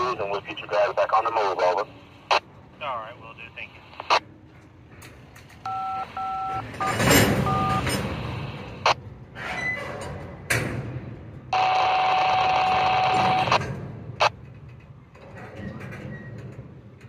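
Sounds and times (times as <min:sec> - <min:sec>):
radio static burst: 0:03.2 - 0:04.2
touch-tone beeps: 0:05.7 - 0:07.8.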